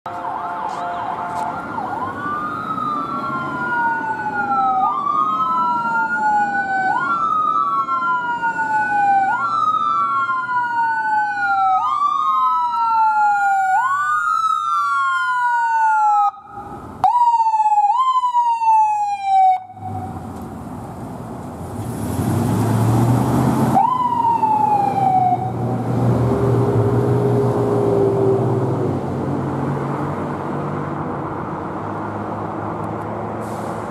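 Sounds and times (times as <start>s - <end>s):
ambulance siren wailing: 0.1s - 20.3s, 23.0s - 29.1s
passing vehicles engine and road noise: 0.1s - 33.9s.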